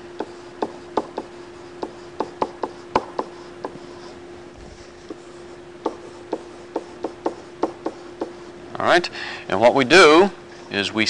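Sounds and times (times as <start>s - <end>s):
faint hum: 0.0s - 11.0s.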